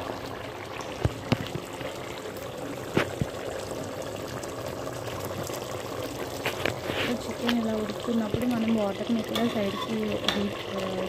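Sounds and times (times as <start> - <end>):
bubbling liquid in a pot: 0.0 - 11.0.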